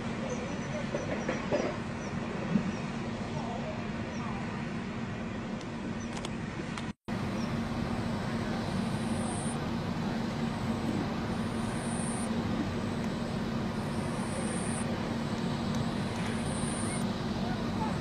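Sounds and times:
mechanical rumble with low hum: 0:01.9 - 0:18.0
faint high hissing pulses: 0:07.2 - 0:18.0.

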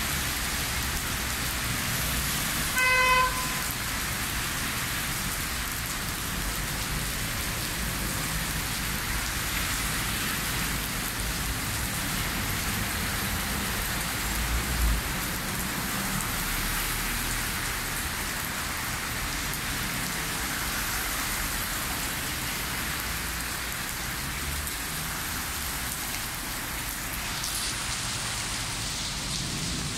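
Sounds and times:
heavy rain on street: 0:00.0 - 0:29.9.

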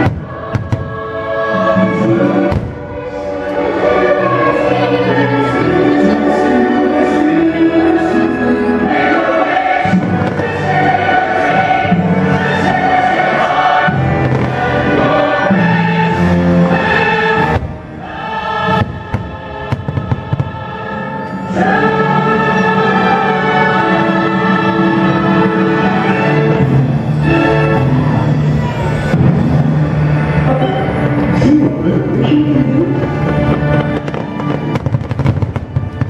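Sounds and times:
fireworks exploding: 0:00.0 - 0:01.2, 0:02.5 - 0:03.1, 0:09.9 - 0:12.0, 0:13.9 - 0:16.0, 0:18.7 - 0:20.8, 0:33.0 - 0:36.0
choir singing over orchestra: 0:00.0 - 0:36.0.

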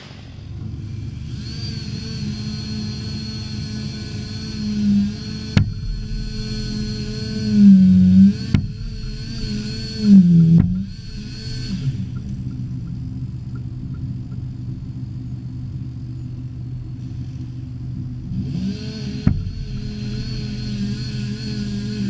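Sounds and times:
wavering whine: 0:00.0 - 0:22.0
winch engine humming: 0:02.2 - 0:16.8, 0:19.1 - 0:22.0.

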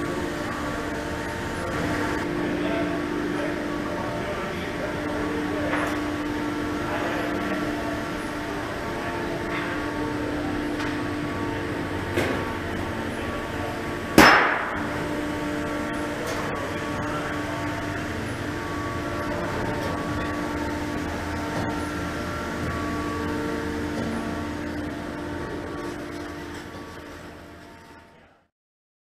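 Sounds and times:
workshop machinery humming: 0:00.0 - 0:28.5
sharp metallic clang: 0:14.2 - 0:15.0.

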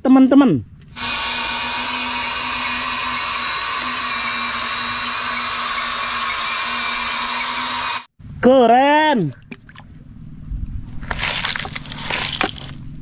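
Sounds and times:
electric motor whirring: 0:00.9 - 0:08.1.

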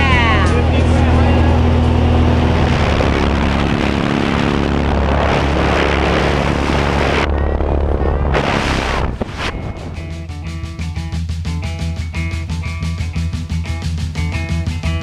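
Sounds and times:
propeller plane droning: 0:00.0 - 0:15.0
wind rushing: 0:01.0 - 0:10.4.

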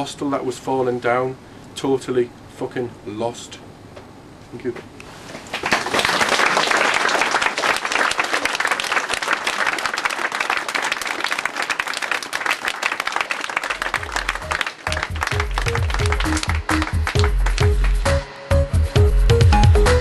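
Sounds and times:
audience applauding: 0:05.4 - 0:18.2
music with deep bass: 0:13.9 - 0:20.0.

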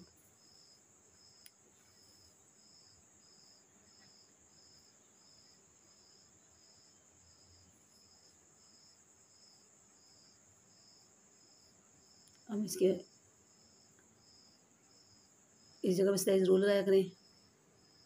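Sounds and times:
crickets chirping: 0:00.0 - 0:18.0.

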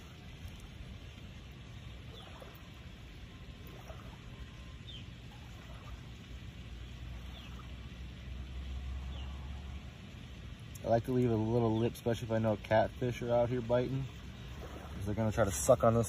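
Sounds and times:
bird chirps: 0:07.2 - 0:07.7.

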